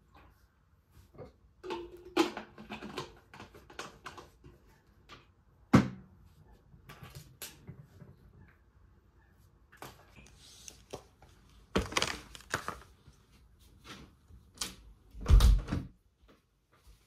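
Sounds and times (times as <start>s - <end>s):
plastic bottle clicks and rattles: 1.6s - 4.6s, 11.7s - 12.9s.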